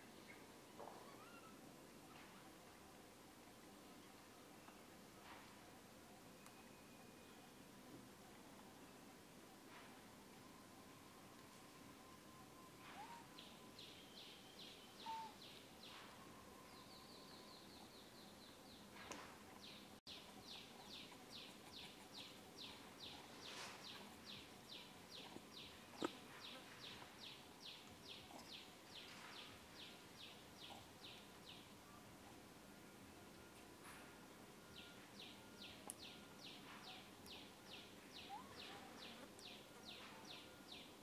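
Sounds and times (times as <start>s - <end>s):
bird trill: 12.8s - 18.0s.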